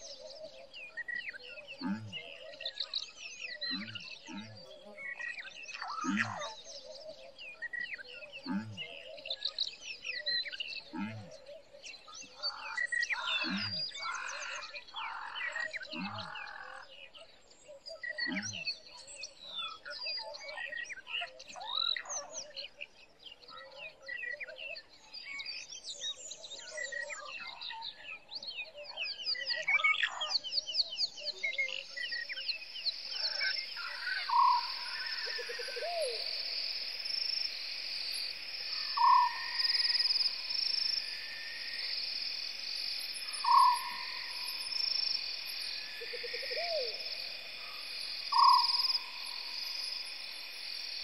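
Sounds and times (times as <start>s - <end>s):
small birds chirping: 0.0s - 51.0s
pulsing insect trill: 3.5s - 6.5s, 12.8s - 14.6s, 31.8s - 51.0s.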